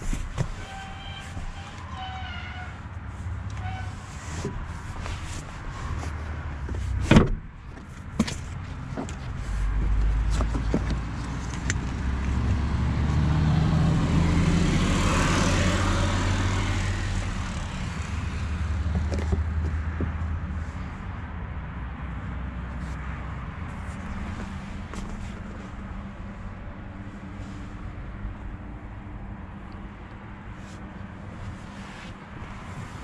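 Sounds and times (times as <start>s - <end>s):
vehicle passing by: 11.0s - 19.0s.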